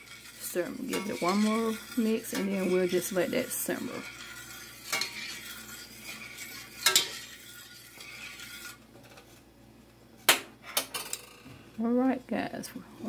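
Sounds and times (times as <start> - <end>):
spoon scraping metal pot: 0.0 - 9.4
spoon clinking on metal: 6.8 - 7.3.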